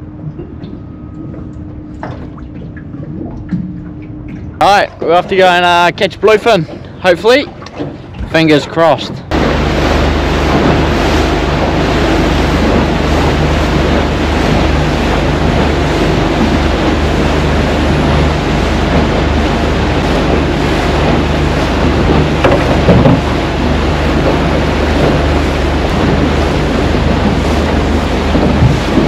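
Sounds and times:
outboard motor running: 0.0s - 29.0s
water rushing: 0.0s - 29.0s
wind buffeting microphone: 9.0s - 29.0s.

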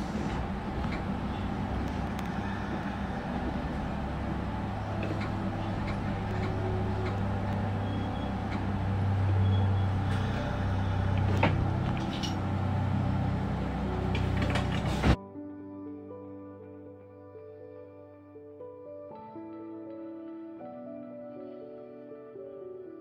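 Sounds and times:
electric train hum: 0.0s - 15.2s.

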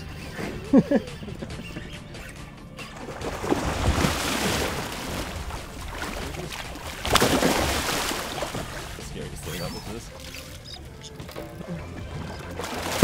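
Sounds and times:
fish thrashing in water: 2.9s - 9.0s, 11.3s - 13.0s.

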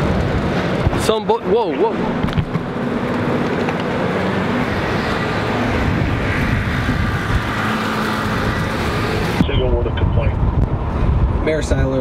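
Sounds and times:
passing vehicles rushing: 0.0s - 12.0s.

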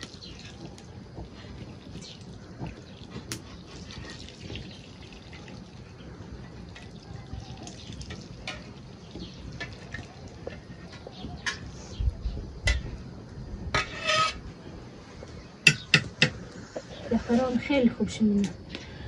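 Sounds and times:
oil dripping through metal skimmer: 0.0s - 11.8s.

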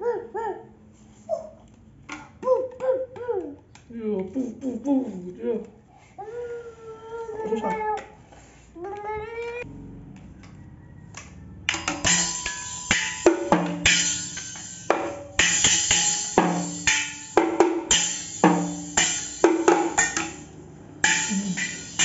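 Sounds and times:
toy drums hit with sticks: 11.1s - 22.0s
thin metal cymbal: 11.7s - 22.0s.

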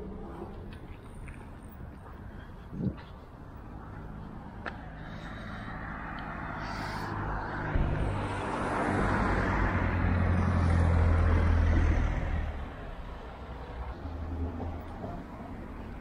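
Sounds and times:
car driving past: 4.9s - 13.0s.

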